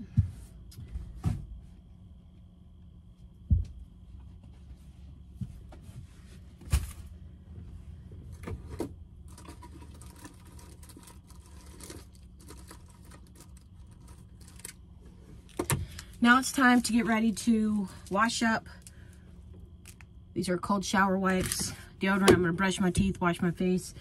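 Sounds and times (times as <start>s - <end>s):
steady low hum: 0.0s - 24.0s
knocks and thumps: 3.4s - 3.9s.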